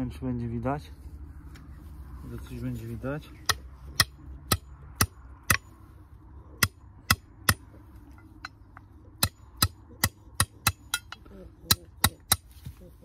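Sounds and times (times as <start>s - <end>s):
hammer striking metal fitting: 3.4s - 5.7s, 6.6s - 12.4s.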